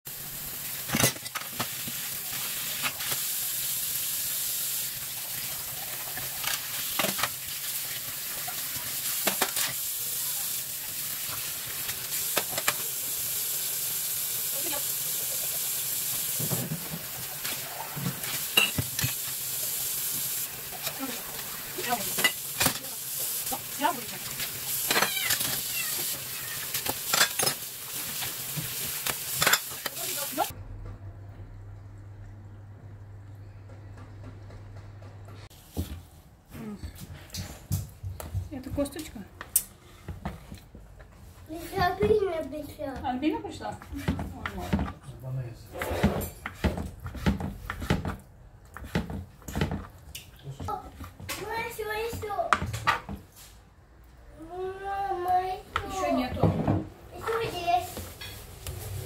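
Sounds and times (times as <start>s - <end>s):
tap water running: 0.1s - 30.6s, 48.9s - 53.2s
crockery clinking: 18.5s - 18.9s.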